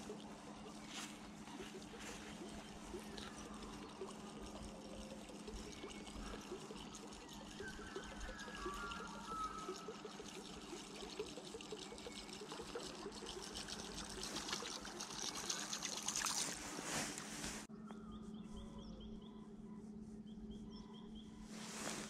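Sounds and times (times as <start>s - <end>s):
small splashy ticks: 0.0s - 16.5s
water trickling and gurgling: 0.0s - 17.7s
birds chirping: 0.0s - 22.0s
steady low hum: 0.0s - 22.0s.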